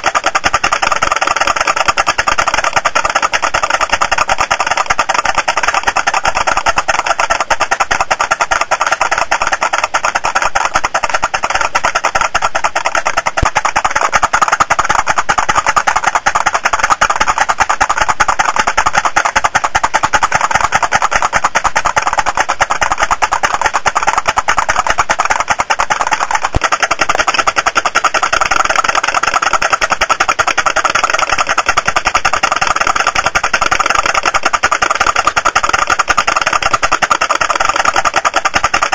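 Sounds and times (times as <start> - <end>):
pop-pop steam engine popping: 0.0 - 38.9.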